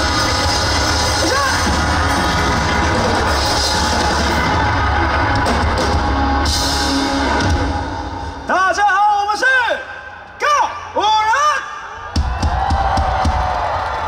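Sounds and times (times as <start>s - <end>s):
rock band playing: 0.0s - 9.5s.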